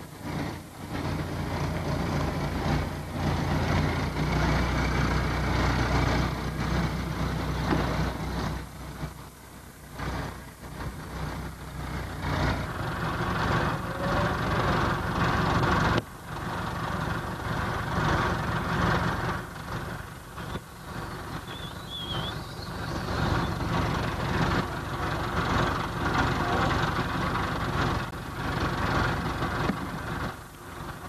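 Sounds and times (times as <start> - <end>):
tractor diesel engine rumbling: 0.0 - 31.0.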